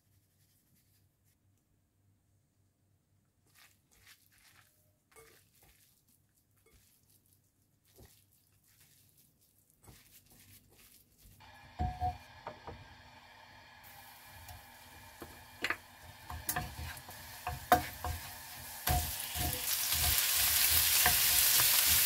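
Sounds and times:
hands squishing and rubbing food: 3.3s - 11.5s.

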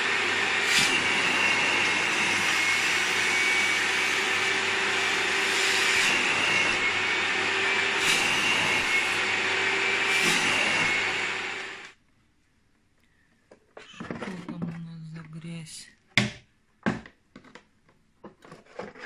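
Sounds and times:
vacuum cleaner running: 0.0s - 12.0s.

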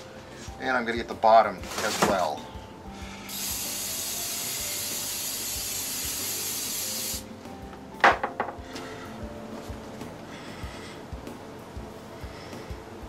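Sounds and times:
aerosol can spraying: 3.2s - 7.3s.

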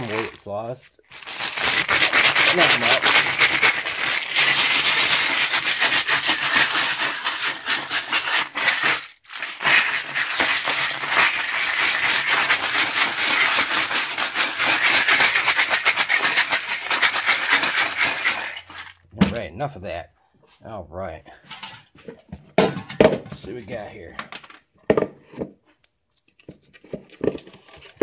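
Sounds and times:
metal pieces rattling in plastic jug: 0.0s - 19.0s.

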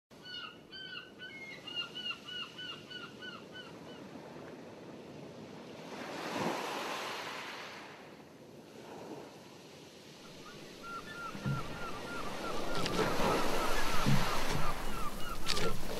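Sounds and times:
bird calling: 0.2s - 4.0s, 10.2s - 15.9s
open water wash: 10.1s - 15.9s
wave surging: 10.2s - 15.9s.

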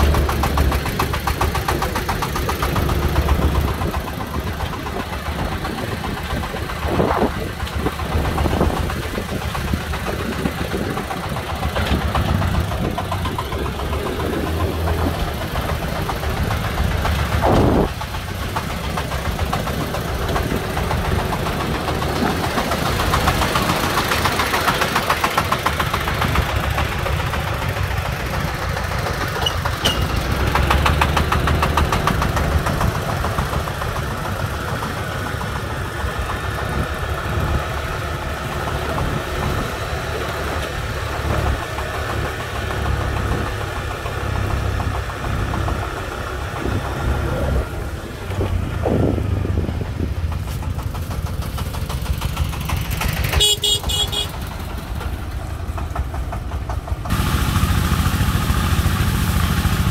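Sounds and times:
diesel truck engine chugging: 0.0s - 59.9s
motorbike engine and road noise: 0.0s - 59.9s
vehicle horn: 53.4s - 54.4s.

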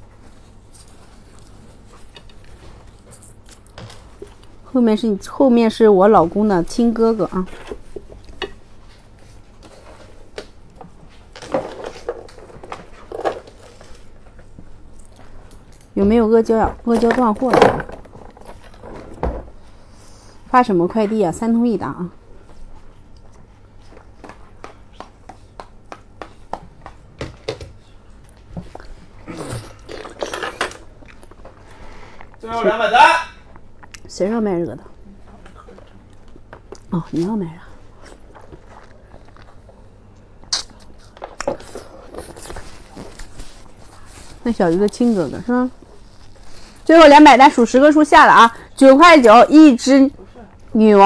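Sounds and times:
wet chewing: 38.0s - 39.7s.

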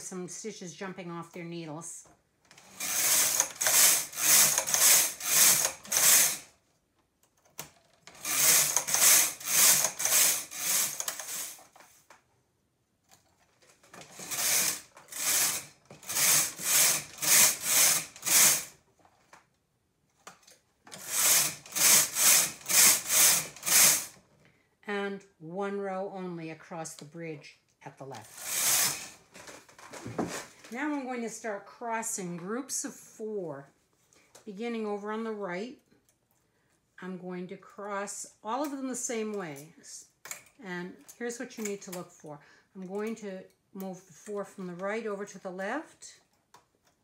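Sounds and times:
knitting machine carriage rasping: 2.5s - 6.6s, 7.6s - 11.8s, 13.8s - 18.8s, 20.9s - 24.2s, 28.2s - 29.2s.

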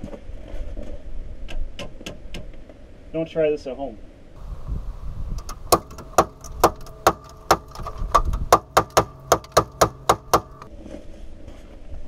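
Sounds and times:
hammer striking metal: 5.4s - 10.7s.

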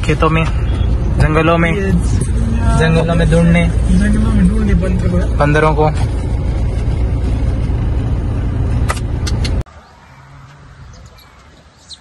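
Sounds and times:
car engine and road noise: 0.0s - 12.0s
sharp clicks: 8.9s - 9.6s.

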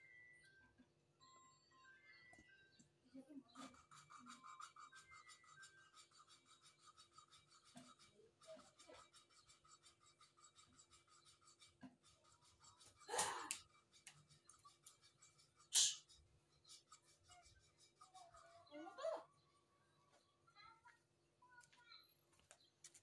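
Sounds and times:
valve rubbing and scraping: 3.6s - 19.2s.

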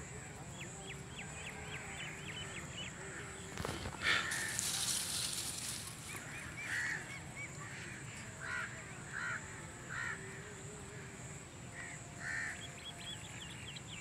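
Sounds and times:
crow cawing: 3.0s - 5.5s, 6.2s - 10.2s, 11.8s - 12.6s.

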